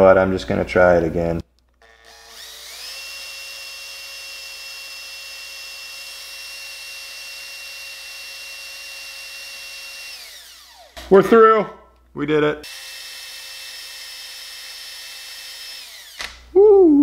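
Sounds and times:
power drill drilling into wood: 0:01.8 - 0:11.1, 0:12.6 - 0:16.4.

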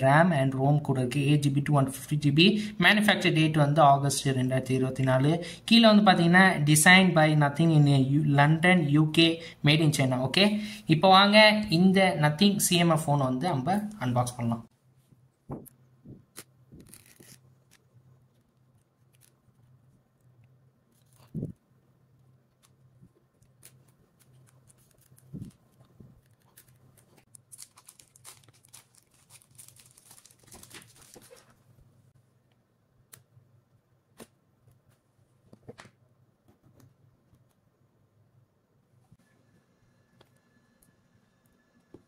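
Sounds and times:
scissors snipping plastic wrap: 0:16.3 - 0:17.8, 0:26.2 - 0:31.4
plastic tearing: 0:16.3 - 0:19.6, 0:23.4 - 0:31.6
plastic film crinkling: 0:16.4 - 0:19.6, 0:22.6 - 0:31.6.

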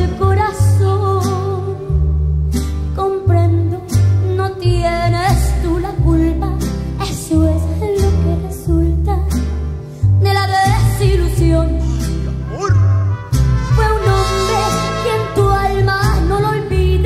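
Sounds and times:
person singing: 0:10.7 - 0:13.1
live band music: 0:11.6 - 0:17.0.

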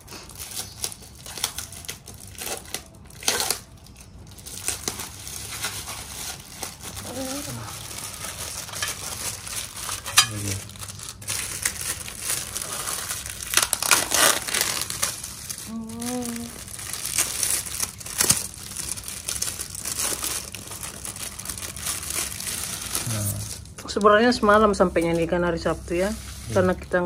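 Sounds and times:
plastic packaging crinkling: 0:00.0 - 0:25.3
person speaking: 0:23.0 - 0:23.5, 0:26.4 - 0:27.0.

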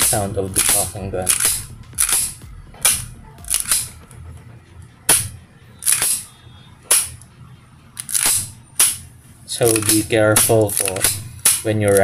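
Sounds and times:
airsoft pistol shots: 0:00.0 - 0:03.9, 0:05.1 - 0:06.3, 0:06.9 - 0:07.2, 0:08.1 - 0:09.1, 0:09.7 - 0:11.7.

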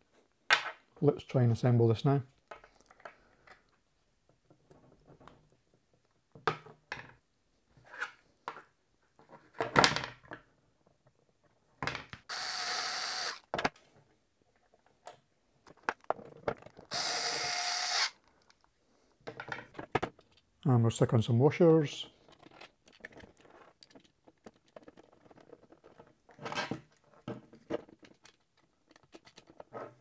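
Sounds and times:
cordless drill driving screws: 0:12.3 - 0:13.5, 0:16.9 - 0:18.2
plastic and metal parts clicking: 0:22.2 - 0:29.8.

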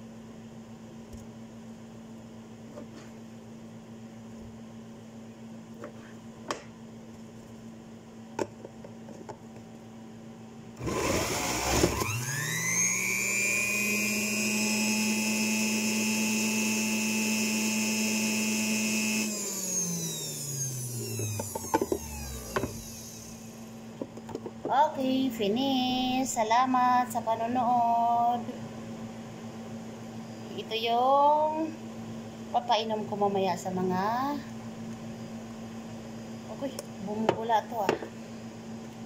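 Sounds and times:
electric juicer motor whining: 0:10.8 - 0:23.9.

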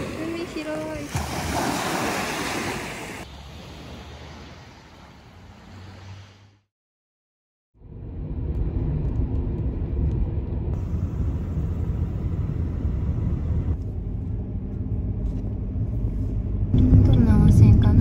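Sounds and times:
car road and engine rumble: 0:02.6 - 0:06.7, 0:07.8 - 0:18.0.

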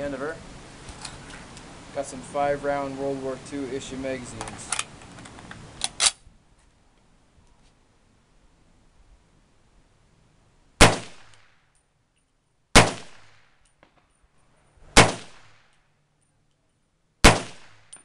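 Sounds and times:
rifle shots: 0:10.8 - 0:11.5, 0:12.8 - 0:13.5, 0:15.0 - 0:15.7, 0:17.2 - 0:18.0.

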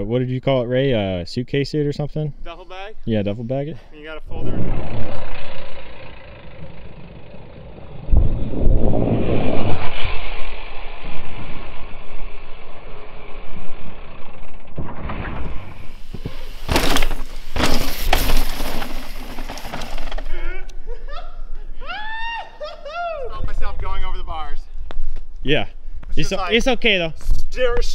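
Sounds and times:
bike tyres on loose dirt: 0:04.4 - 0:20.6
wind noise on microphone: 0:07.8 - 0:11.8
sharp bike knocks: 0:14.8 - 0:20.3.

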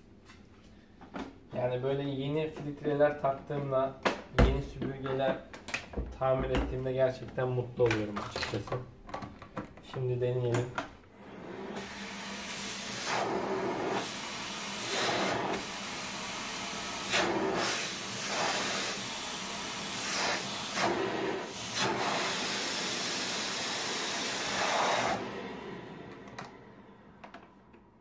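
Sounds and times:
vacuum cleaner motor and airflow: 0:10.6 - 0:27.9.

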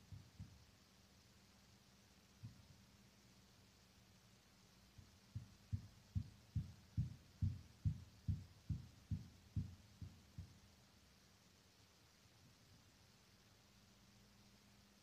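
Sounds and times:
distant muffled hammering: 0:05.0 - 0:10.6.

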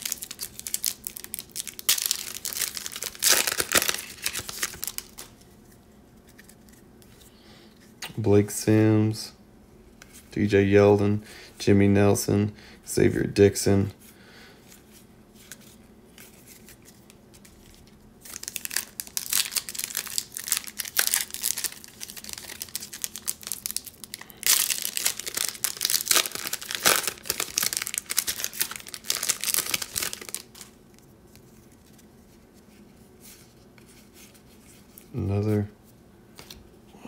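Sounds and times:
foil wrapper tearing and crinkling: 0:00.0 - 0:05.3, 0:18.2 - 0:30.8.

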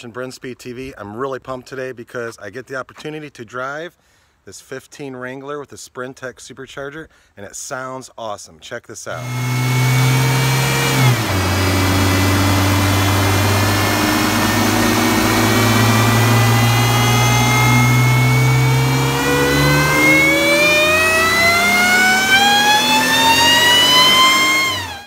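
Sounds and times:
car engine running: 0:09.2 - 0:25.0
supercharger whining: 0:09.2 - 0:25.0.

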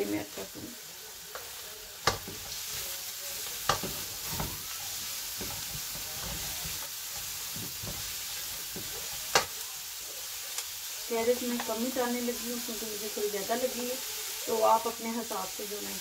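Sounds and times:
food sizzling in a wok: 0:00.0 - 0:16.0
wooden spatula stirring food: 0:00.4 - 0:11.9.

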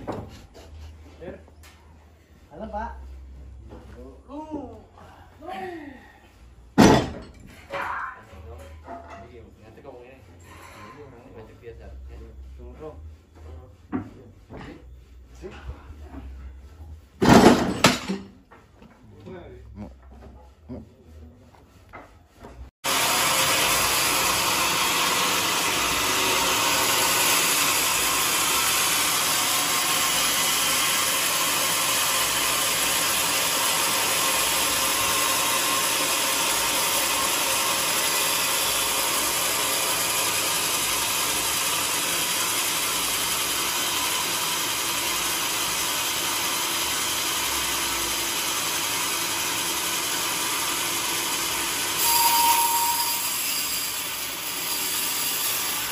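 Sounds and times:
band saw whirring: 0:22.9 - 0:55.9.

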